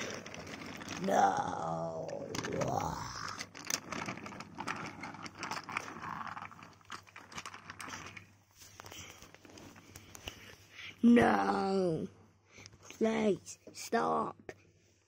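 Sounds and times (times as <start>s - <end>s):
wooden toy trains on a track: 0.0s - 10.7s.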